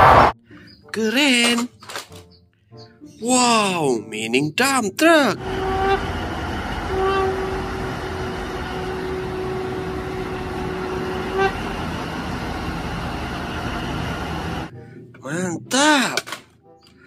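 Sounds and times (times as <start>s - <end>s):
diesel engine running: 5.4s - 14.7s
truck horn blast: 5.4s - 14.7s.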